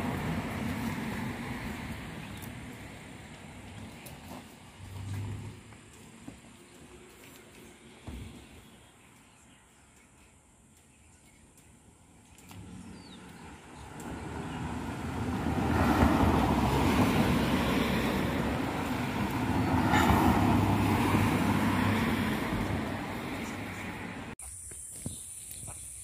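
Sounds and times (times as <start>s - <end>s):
motor vehicle passing: 0.0s - 7.9s, 12.3s - 24.4s.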